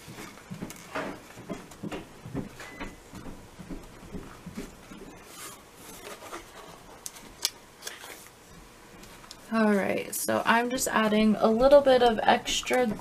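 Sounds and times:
paper box rustling and scraping: 5.1 - 8.4.

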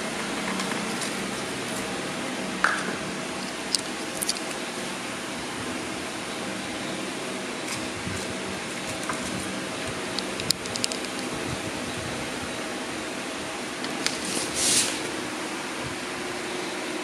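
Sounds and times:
hands handling plastic tub clicks: 3.4 - 4.6, 10.1 - 11.3.

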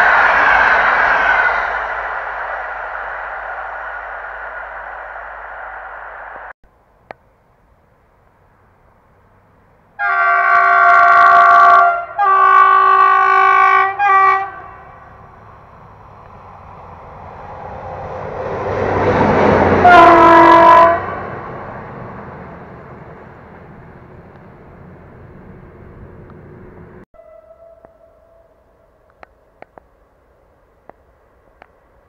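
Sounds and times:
train wheel noise: 0.0 - 7.1, 10.8 - 32.0
diesel locomotive engine: 0.0 - 32.0
locomotive horn blasts: 10.0 - 15.1, 19.8 - 21.3, 27.2 - 28.6.

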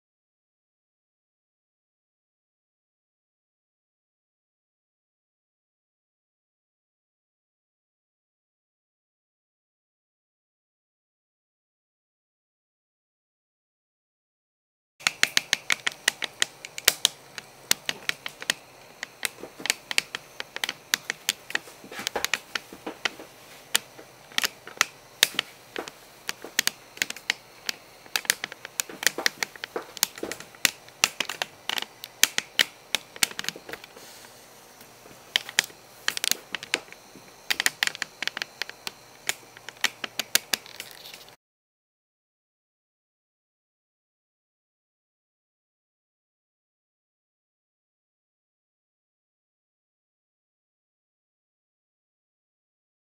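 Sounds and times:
keyboard typing clicks: 15.0 - 33.9, 35.4 - 41.3.

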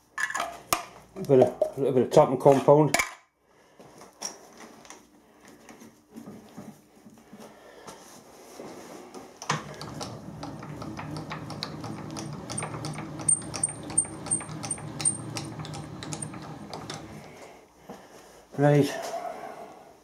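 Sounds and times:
milling machine spindle humming: 9.4 - 17.5.

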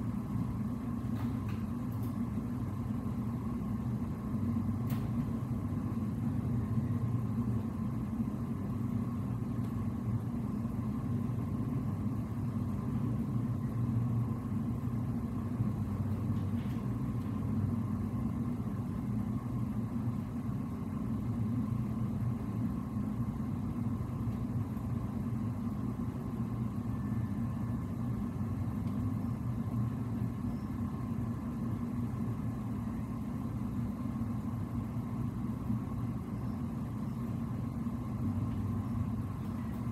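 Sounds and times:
faint higher hum: 0.0 - 39.9.

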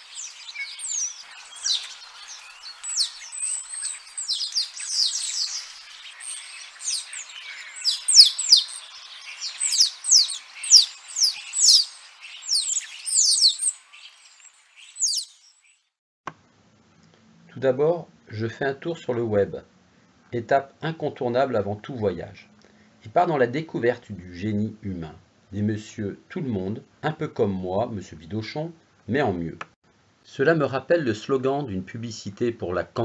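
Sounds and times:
birds chirping and singing: 0.0 - 15.8.

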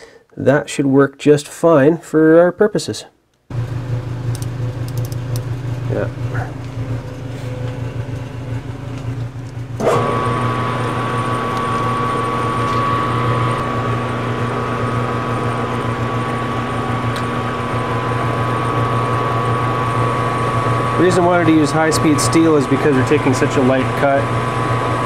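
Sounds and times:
low hum: 3.5 - 21.4
metal lathe running with whine: 3.6 - 25.0.

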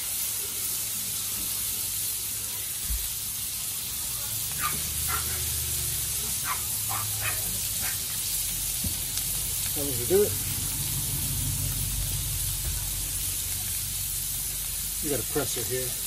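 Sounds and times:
butter sizzling: 0.0 - 16.0
hot griddle hissing: 0.0 - 16.0.

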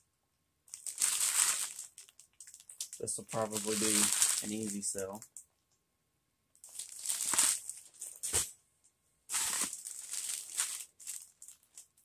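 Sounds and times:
plastic packaging crinkling: 0.7 - 5.2, 6.6 - 8.4, 9.3 - 12.0.

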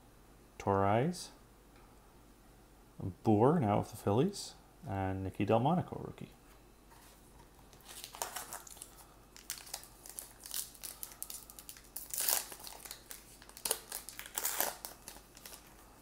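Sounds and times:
foil wrapper crinkling and tearing: 7.7 - 16.0.

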